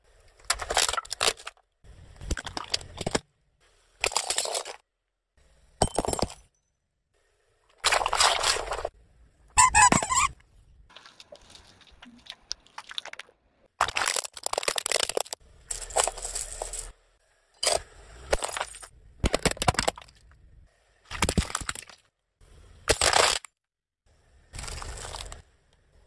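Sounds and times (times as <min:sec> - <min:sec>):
coins clinking and scraping: 0:15.7 - 0:16.9.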